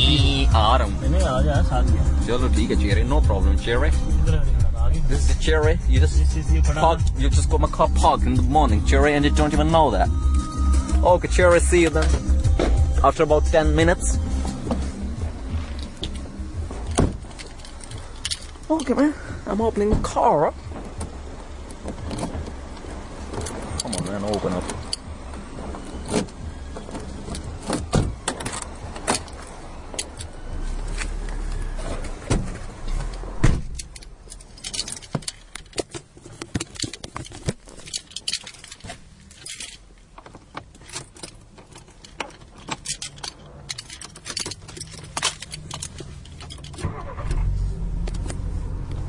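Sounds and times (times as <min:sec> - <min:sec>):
car keys jangling: 0:00.0 - 0:19.1, 0:20.5 - 0:32.2, 0:32.8 - 0:48.4
low steady rumble: 0:00.0 - 0:19.6, 0:44.6 - 0:49.0
car door clicks and knocks: 0:15.6 - 0:18.5, 0:19.8 - 0:29.4, 0:32.1 - 0:34.0.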